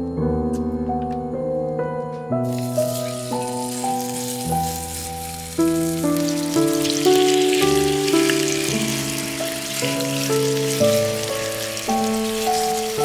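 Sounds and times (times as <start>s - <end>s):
background music melody: 0.0s - 13.0s
meat sizzling in a pan: 2.4s - 13.0s.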